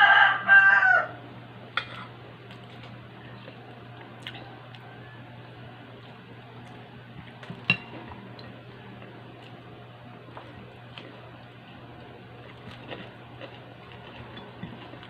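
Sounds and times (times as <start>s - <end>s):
chewing: 2.5s - 4.9s, 6.0s - 9.6s, 10.3s - 15.0s.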